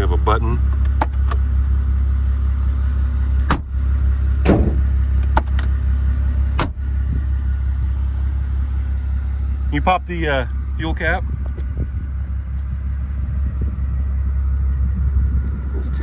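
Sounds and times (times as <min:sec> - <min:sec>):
steady low rumble: 0:00.0 - 0:16.0
car door latch clacking: 0:00.8 - 0:01.4, 0:03.4 - 0:03.8, 0:04.4 - 0:05.7, 0:06.6 - 0:06.8.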